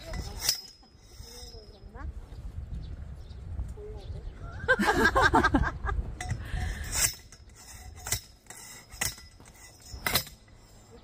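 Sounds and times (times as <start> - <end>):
stake driver clanking metal: 0.0 - 1.7, 6.2 - 10.9.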